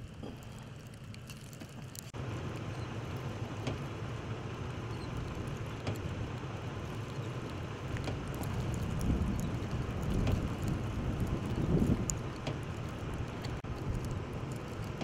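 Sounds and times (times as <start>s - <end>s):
wind buffeting microphone: 4.8s - 15.0s.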